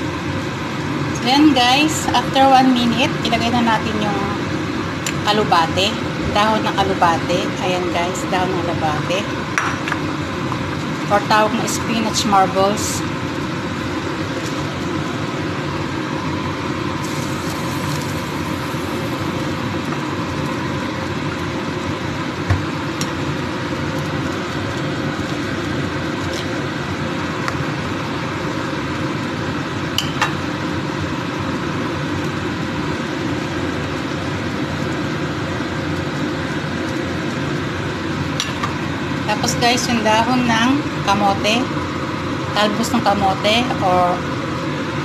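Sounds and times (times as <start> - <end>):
soup boiling and bubbling: 13.0 - 39.3.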